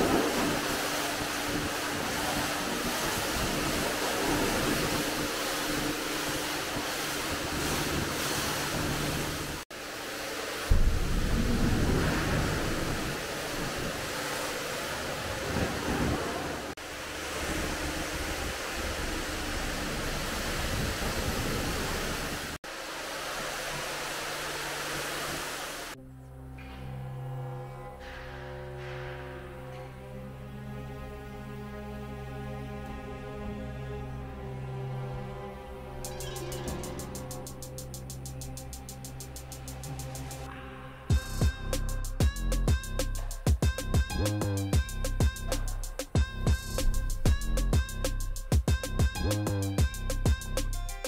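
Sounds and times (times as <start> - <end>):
music: 0.0 - 12.6, 26.0 - 51.0
water spraying: 0.0 - 26.0, 35.8 - 40.5.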